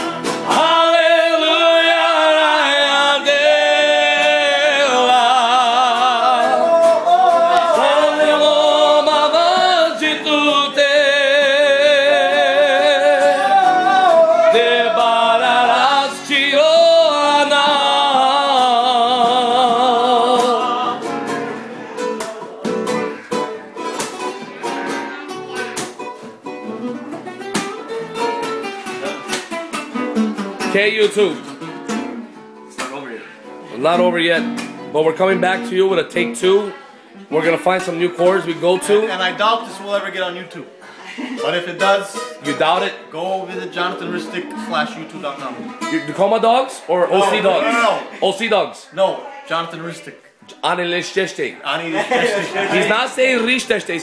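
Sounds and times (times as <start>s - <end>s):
person singing with vibrato: 0.0s - 25.8s
strummed classical guitar: 0.0s - 48.2s.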